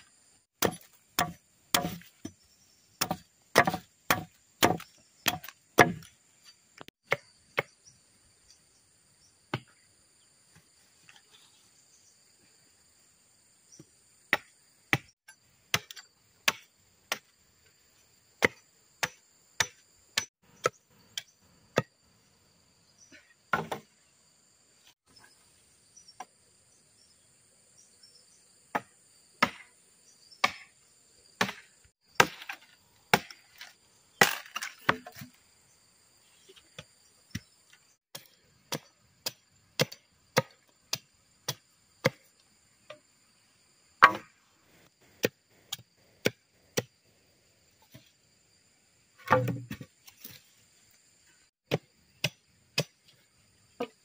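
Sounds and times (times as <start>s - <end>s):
machete chopping wood: 0.6s - 2.4s, 3.0s - 6.2s, 14.3s - 15.1s, 15.7s - 17.3s, 18.4s - 21.9s, 23.5s - 23.9s, 28.7s - 29.7s, 30.4s - 30.7s, 31.4s - 35.4s, 36.8s - 42.3s, 44.0s - 44.4s, 45.2s - 47.0s, 49.2s - 50.4s, 51.7s - 53.2s.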